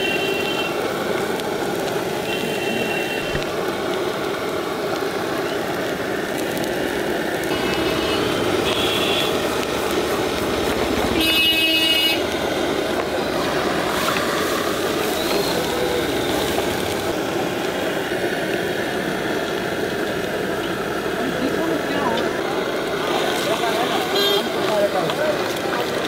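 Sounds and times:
street traffic: 0:00.0 - 0:26.0
vehicle horn honking: 0:07.6 - 0:09.4, 0:11.2 - 0:12.2, 0:24.1 - 0:24.5.

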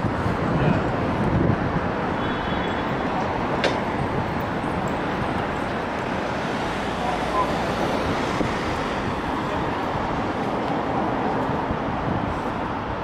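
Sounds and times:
traffic rumble and hiss: 0:00.0 - 0:13.0.

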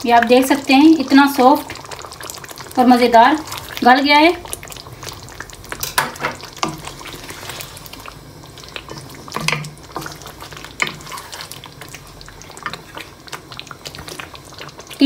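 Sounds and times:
gravy sizzling faintly: 0:00.0 - 0:15.0
spatula scraping a frying pan: 0:08.9 - 0:11.8.

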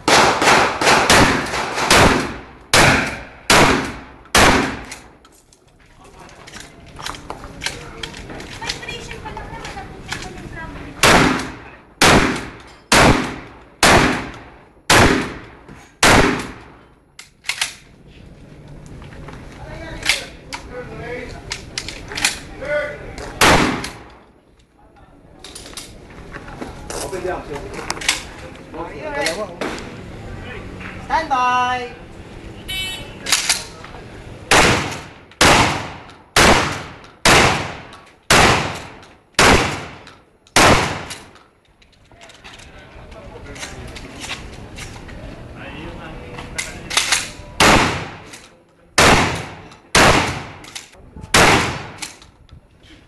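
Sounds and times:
shotgun shots: 0:00.0 - 0:05.1, 0:11.0 - 0:16.8, 0:23.4 - 0:24.1, 0:34.5 - 0:41.3, 0:47.0 - 0:48.4, 0:49.0 - 0:52.2.

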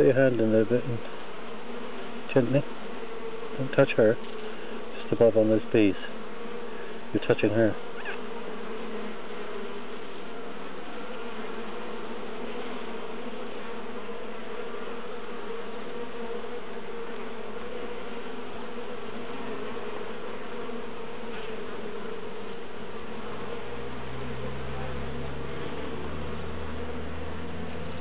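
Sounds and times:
bees buzzing: 0:00.0 - 0:28.0.

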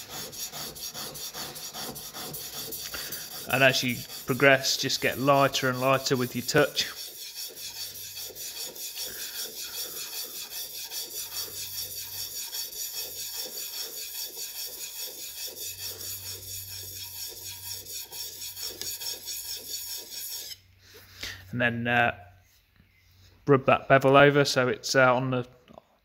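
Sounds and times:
chisel scraping on sharpening stone: 0:00.0 - 0:20.6.

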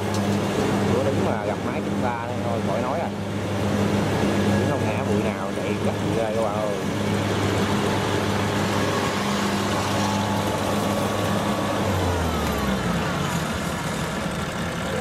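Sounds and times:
diesel engine running under load: 0:00.0 - 0:15.0.

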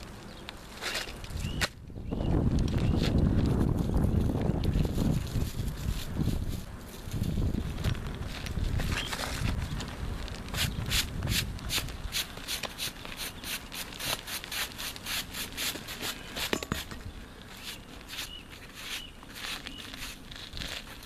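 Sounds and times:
hand brush sweeping grit: 0:10.5 - 0:16.9, 0:17.5 - 0:21.0.

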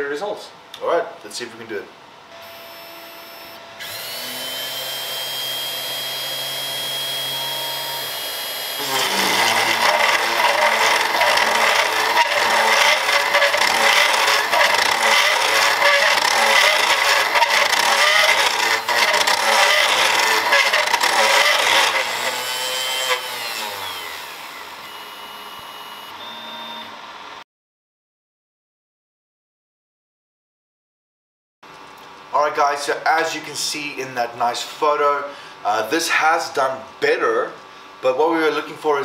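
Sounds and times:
spindle whine: 0:02.3 - 0:27.0
router cutting acrylic: 0:02.4 - 0:26.8.

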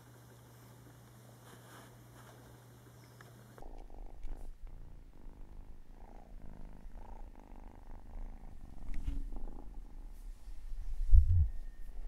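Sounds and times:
cat purring: 0:03.6 - 0:11.6.

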